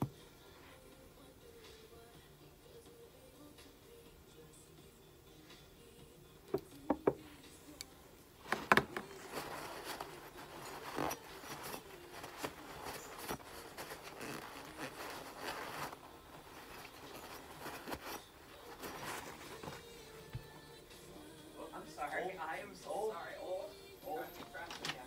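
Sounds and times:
towel rubbing on pistol frame: 8.7 - 19.9.

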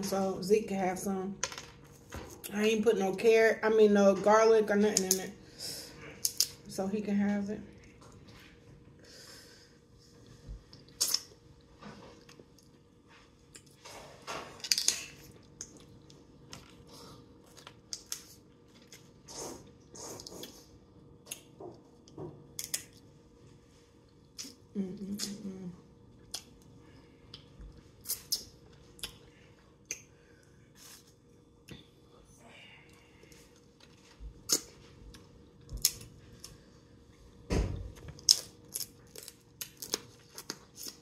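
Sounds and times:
lips smacking and sucking: 10.8 - 11.3
person humming: 24.7 - 25.8.

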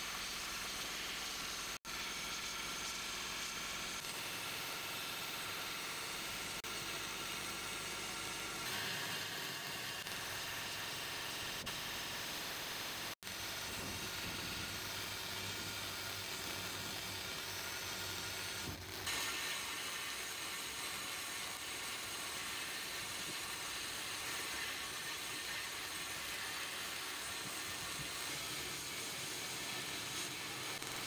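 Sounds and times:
sandblasting gun hissing: 7.4 - 31.0.

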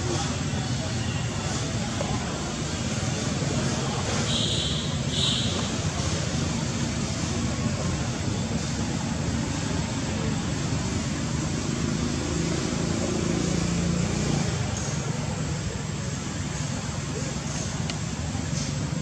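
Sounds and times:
continuous hiss: 0.0 - 19.0.

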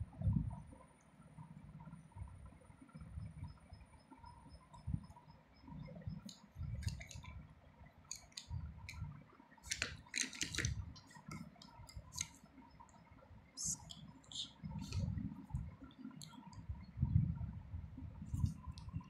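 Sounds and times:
plastic pots clicking on paper: 6.2 - 7.4, 8.1 - 9.0, 9.6 - 12.4.

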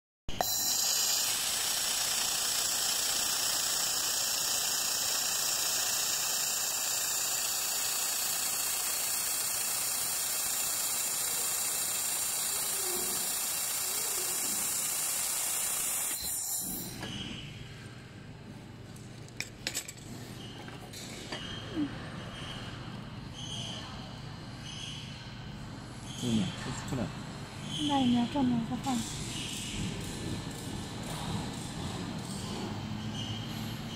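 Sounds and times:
laser welder hissing: 0.3 - 16.9.

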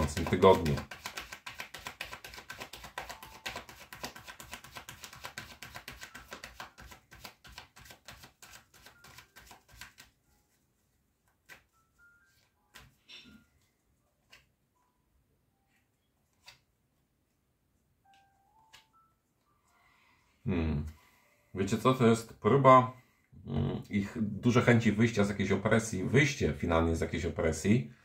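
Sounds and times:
cards being shuffled: 0.0 - 10.6, 11.2 - 13.0, 14.2 - 14.5, 16.2 - 16.8, 18.1 - 18.9.

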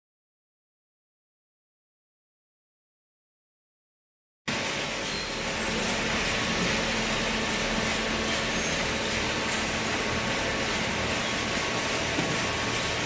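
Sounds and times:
baler and conveyor running: 4.5 - 13.0.

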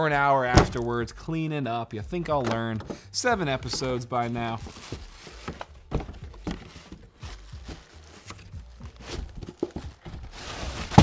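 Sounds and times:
cardboard flaps scraping: 3.6 - 11.0
plastic bag crinkling: 4.2 - 11.0.

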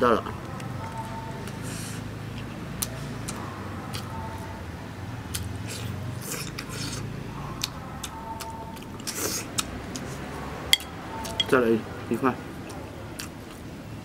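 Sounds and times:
person chewing: 0.5 - 4.1, 5.3 - 11.6, 12.7 - 13.7
chopsticks clicking against bowl: 10.7 - 11.6.

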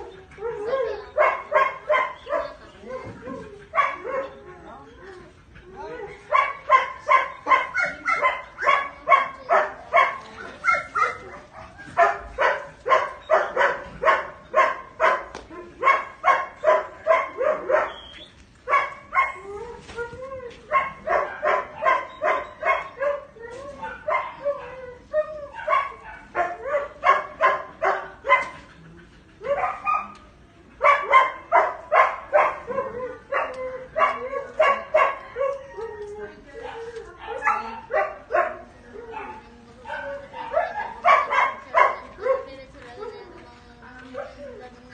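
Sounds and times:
dog barking: 1.2 - 2.6, 3.7 - 4.3, 6.3 - 18.0, 18.7 - 19.4, 20.7 - 23.3, 25.6 - 28.6, 29.4 - 30.2, 30.8 - 35.6, 36.6 - 42.6.

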